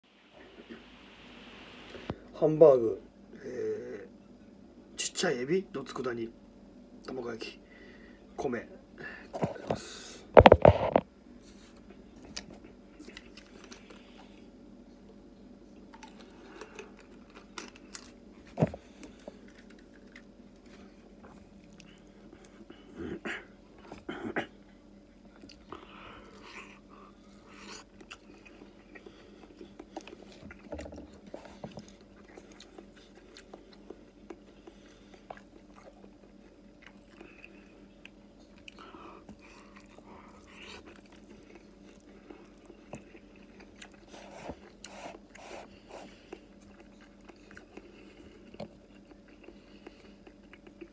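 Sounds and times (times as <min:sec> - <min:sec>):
faint steady hum: 0:00.0 - 0:50.9
person chewing food: 0:09.4 - 0:14.5, 0:15.7 - 0:24.6, 0:25.2 - 0:50.9.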